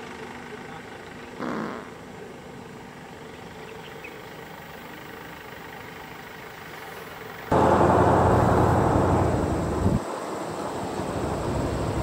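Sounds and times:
vehicle engines idling: 0.0s - 12.0s
loud engine sound: 7.4s - 12.0s.

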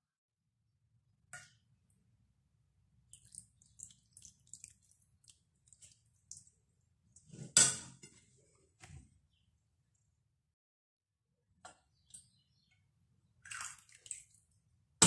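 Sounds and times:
broth trickling and dripping: 3.0s - 7.3s, 13.4s - 14.6s.

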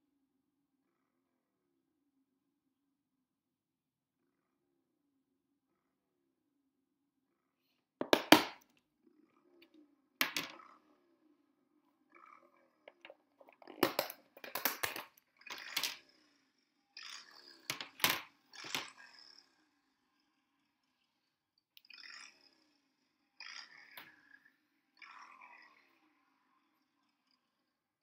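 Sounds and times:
plastic lid clips clicking shut: 12.9s - 15.1s.

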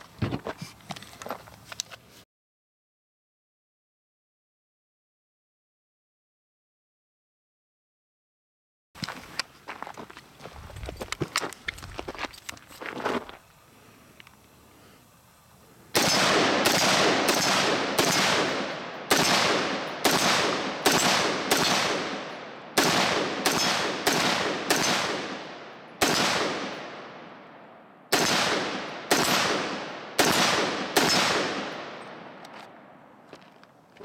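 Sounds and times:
rifle shots with echo: 15.9s - 33.0s.

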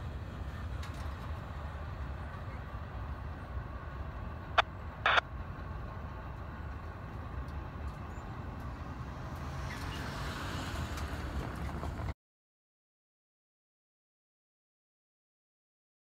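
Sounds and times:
freight train rumbling: 0.0s - 12.1s.

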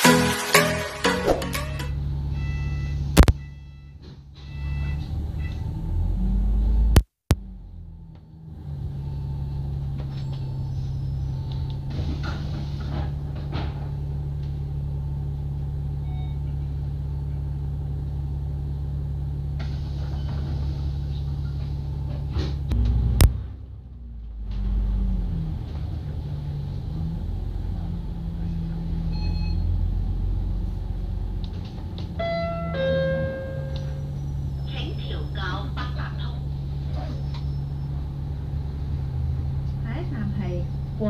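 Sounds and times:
bus engine running: 0.0s - 41.0s.

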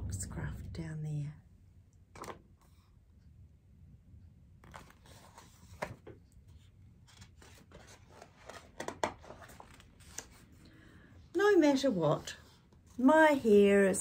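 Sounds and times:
book pages rustling: 4.6s - 10.6s.

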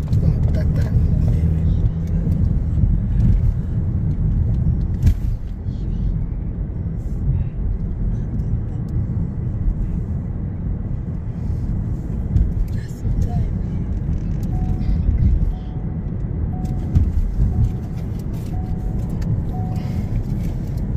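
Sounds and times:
car cabin engine and tyre rumble: 0.0s - 20.9s.

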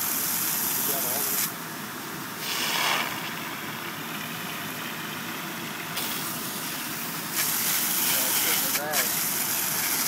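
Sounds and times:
water jetting from fire hose: 0.0s - 1.5s, 2.4s - 3.4s, 6.0s - 10.0s
fire engine pump running: 0.0s - 10.0s.

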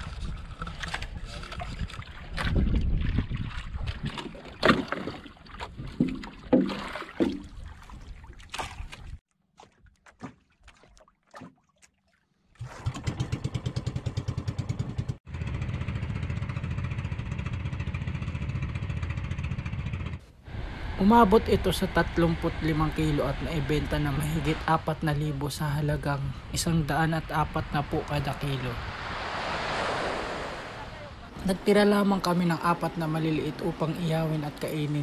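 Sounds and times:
small boat engine running: 12.6s - 21.0s.

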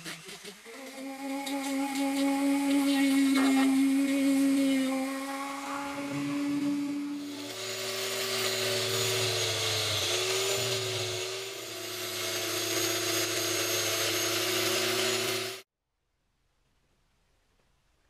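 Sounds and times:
angle grinder polishing metal: 0.0s - 15.6s
higher motor tone: 0.6s - 15.6s.

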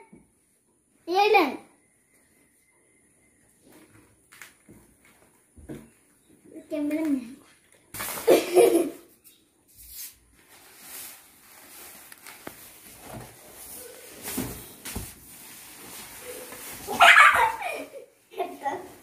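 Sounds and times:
plastic mat rustling and scraping: 7.4s - 8.8s, 9.7s - 19.0s.

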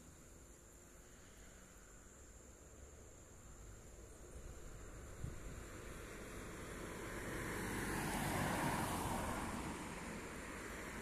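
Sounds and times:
faint steady hiss: 0.0s - 7.2s.

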